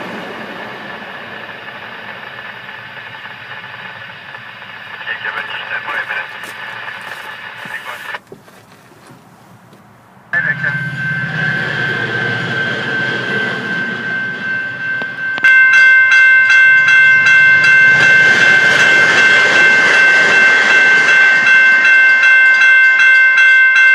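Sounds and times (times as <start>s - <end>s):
level crossing warning signal: 0.0s - 8.2s, 10.3s - 23.9s
train horn chord: 10.3s - 15.4s.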